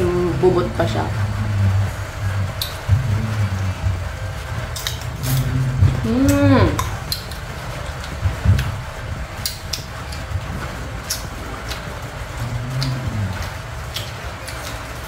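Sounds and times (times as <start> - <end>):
person humming: 0.0 - 4.4, 5.2 - 7.0, 12.4 - 13.7
crisp chewing: 1.2 - 8.8, 9.4 - 15.0.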